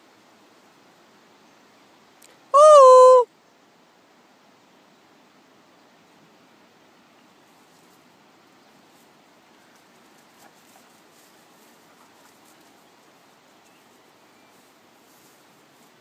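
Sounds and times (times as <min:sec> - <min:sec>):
steady hiss: 0:00.0 - 0:02.5, 0:03.3 - 0:16.0
dogs trotting through tall grass: 0:08.7 - 0:16.0.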